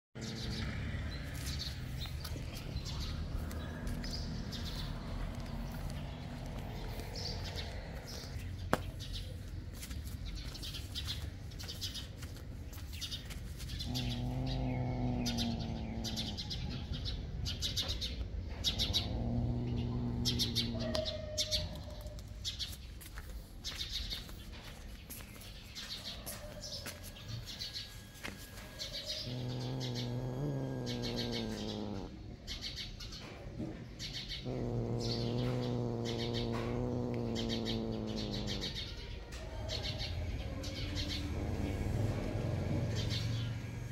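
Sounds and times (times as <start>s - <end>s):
cat growling: 0.3s - 9.1s, 13.6s - 22.3s, 28.5s - 32.9s, 33.6s - 43.9s.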